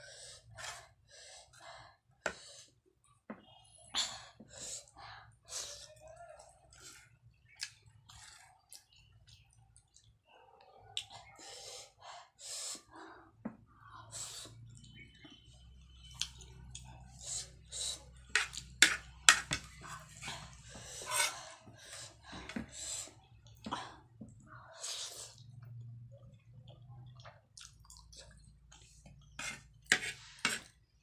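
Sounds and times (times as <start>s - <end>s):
chewing: 6.4s - 11.3s, 25.3s - 29.9s.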